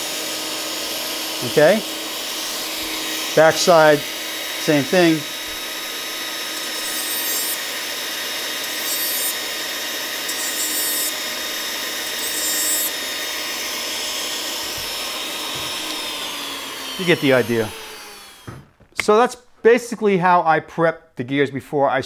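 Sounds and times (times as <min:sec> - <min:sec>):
rotary tool whine: 0:00.0 - 0:18.8.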